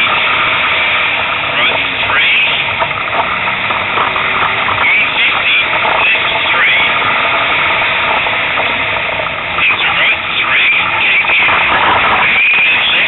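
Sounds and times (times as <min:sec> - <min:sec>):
car engine and road noise: 0:00.0 - 0:13.0
person speaking: 0:01.5 - 0:02.8, 0:04.7 - 0:07.0, 0:09.6 - 0:13.0.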